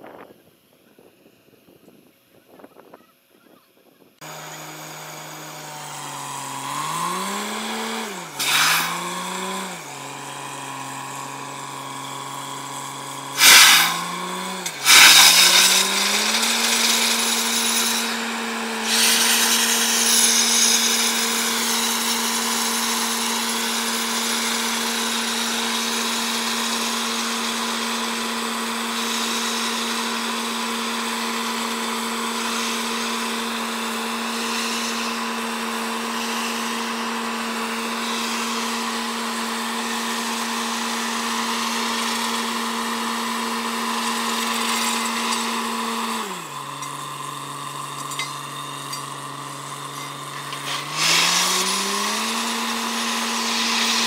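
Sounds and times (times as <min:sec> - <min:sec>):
drilling rig engine revving: 0:04.2 - 0:54.0
compressed air hissing: 0:08.3 - 0:09.0, 0:13.3 - 0:22.0
short loud blasts: 0:13.3 - 0:20.7.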